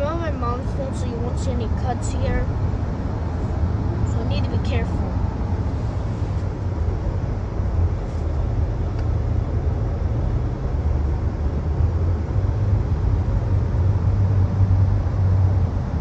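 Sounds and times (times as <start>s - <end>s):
road rumble inside moving car: 0.0s - 16.0s.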